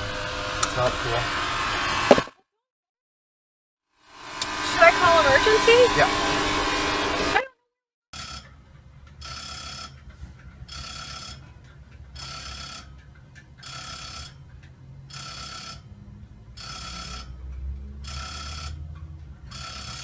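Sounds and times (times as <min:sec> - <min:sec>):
level crossing warning bell: 0:12.2 - 0:13.0, 0:16.5 - 0:17.4, 0:18.0 - 0:18.8.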